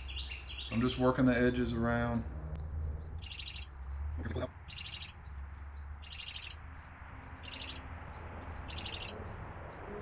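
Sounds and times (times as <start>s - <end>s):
rapidly pulsed chirp: 3.2s - 3.7s, 6.0s - 6.6s, 7.3s - 9.2s.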